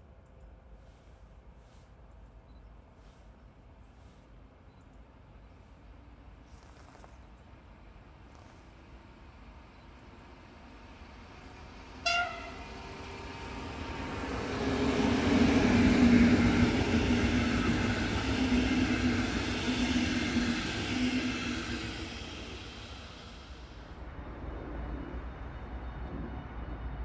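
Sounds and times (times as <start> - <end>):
train wheels on rails: 0.0 - 27.0
locomotive horn toot: 12.0 - 12.8.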